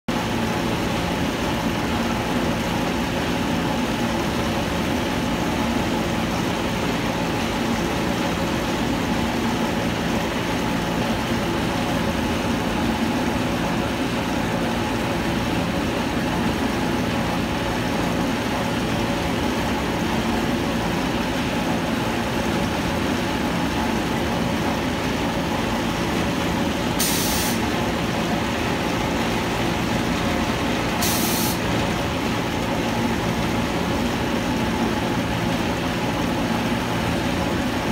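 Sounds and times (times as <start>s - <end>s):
concrete mixing plant machinery din: 0.1s - 37.9s
brief hiss: 27.0s - 27.7s, 31.0s - 31.7s.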